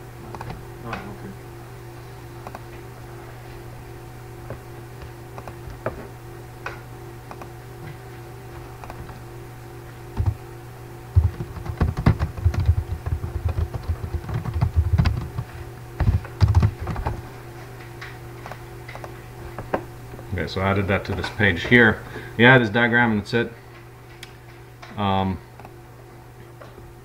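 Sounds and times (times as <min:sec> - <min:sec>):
low electrical hum: 0:00.0 - 0:27.0
typing on computer keyboard: 0:11.2 - 0:17.1.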